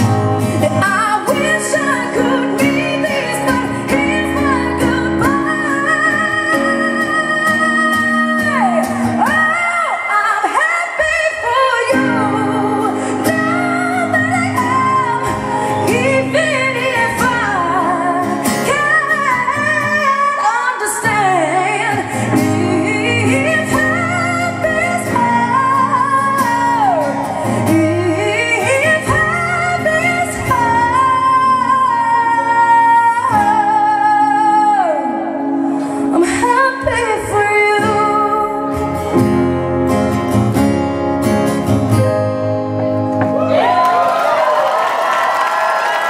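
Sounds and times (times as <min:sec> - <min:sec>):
strummed acoustic guitar: 0:00.0 - 0:09.7, 0:37.8 - 0:43.4
woman singing: 0:00.0 - 0:39.4
audience applauding: 0:43.4 - 0:46.0.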